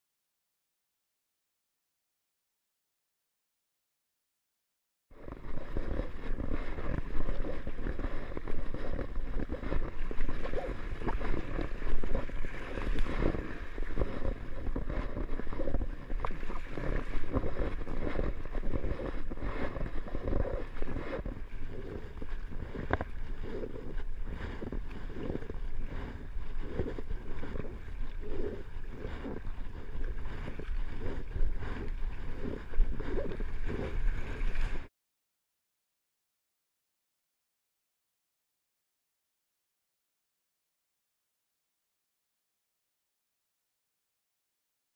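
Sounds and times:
water splashing against kayak: 0:05.2 - 0:34.9.

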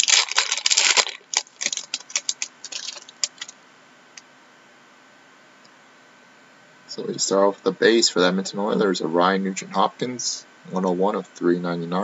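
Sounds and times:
foil wrapper crinkling: 0:00.0 - 0:03.6.

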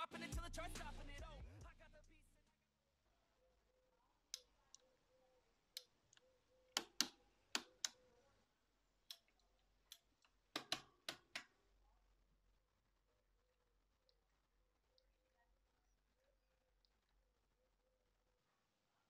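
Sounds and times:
sharp clicks and taps: 0:05.8 - 0:08.0, 0:09.1 - 0:11.5.

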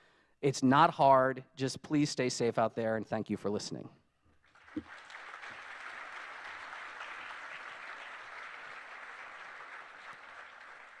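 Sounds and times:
audience applauding: 0:04.5 - 0:11.0.

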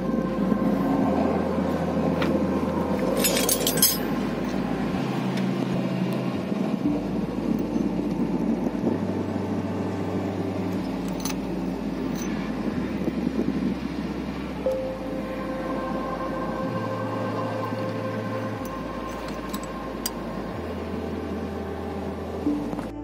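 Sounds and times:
steady mechanical hum: 0:00.0 - 0:23.0
metal clinks: 0:03.1 - 0:04.6, 0:10.7 - 0:12.4, 0:18.5 - 0:20.2.

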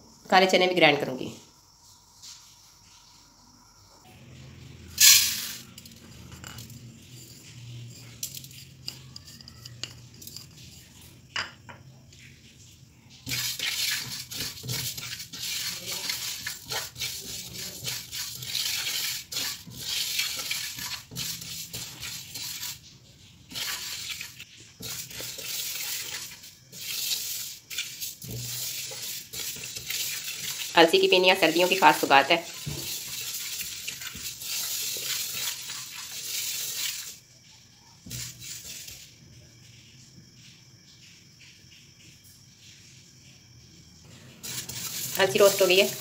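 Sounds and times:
seeds scraping in metal pan: 0:04.9 - 0:11.0, 0:13.2 - 0:37.2, 0:38.1 - 0:39.1, 0:44.3 - 0:46.0.

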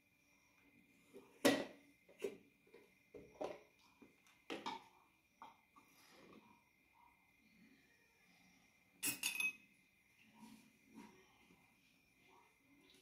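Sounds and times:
plastic spoon clinking glass bowl: 0:09.0 - 0:09.7.

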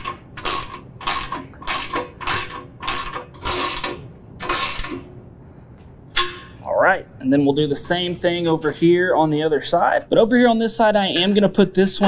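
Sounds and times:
socket ratchet clicking: 0:00.0 - 0:05.1.

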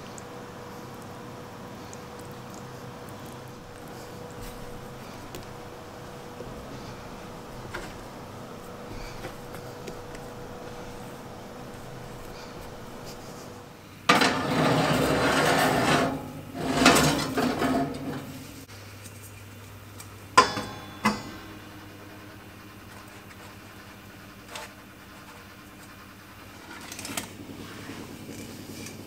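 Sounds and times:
steady low hum: 0:00.0 - 0:29.0
rough rubbing and scraping: 0:03.6 - 0:18.3.

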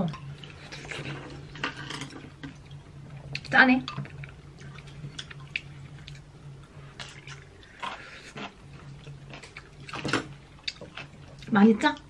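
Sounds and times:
steady low hum: 0:00.0 - 0:12.0
slurping and chewing: 0:04.1 - 0:11.5.

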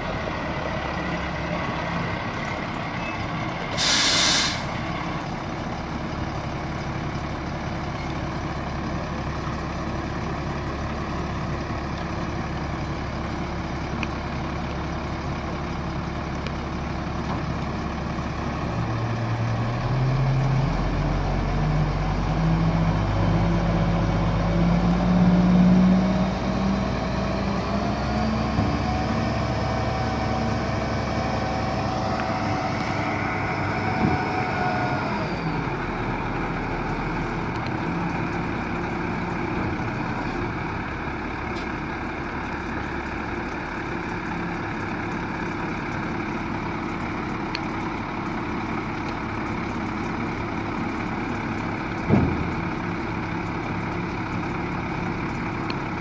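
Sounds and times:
diesel truck engine revving: 0:18.7 - 0:42.0
sharp thump: 0:52.1 - 0:52.5.

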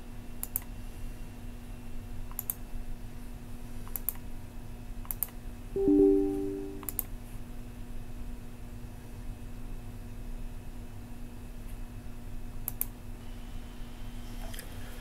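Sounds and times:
computer mouse clicking: 0:00.4 - 0:00.7, 0:02.3 - 0:02.6, 0:03.9 - 0:04.2, 0:05.1 - 0:05.3, 0:12.7 - 0:12.9
two-tone electronic chime: 0:05.8 - 0:06.9.

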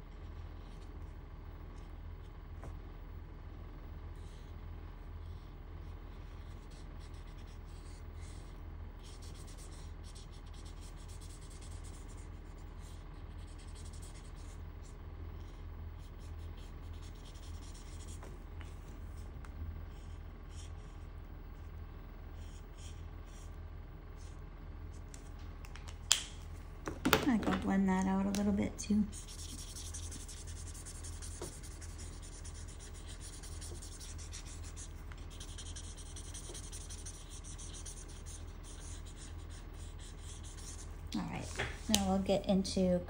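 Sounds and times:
steady low hum: 0:00.0 - 0:43.0
marker rubbing on paper: 0:06.3 - 0:14.6, 0:16.0 - 0:18.2, 0:29.1 - 0:42.0.

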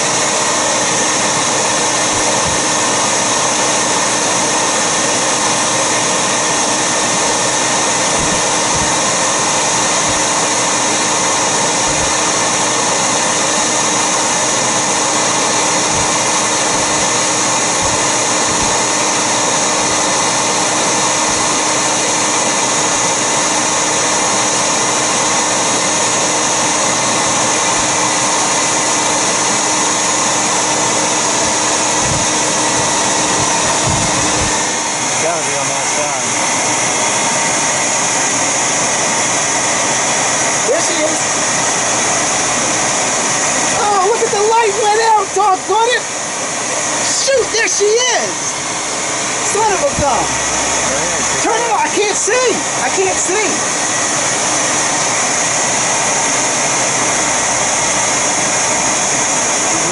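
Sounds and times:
vacuum suction motor running: 0:00.0 - 0:59.9.

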